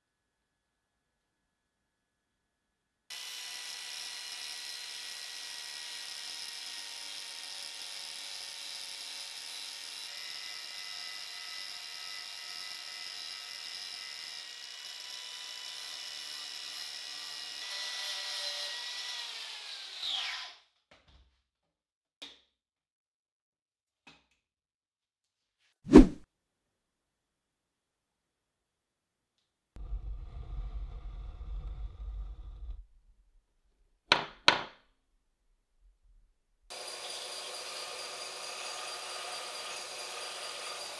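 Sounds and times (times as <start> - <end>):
angle grinder whining on steel: 3.1 - 20.0, 36.7 - 40.9.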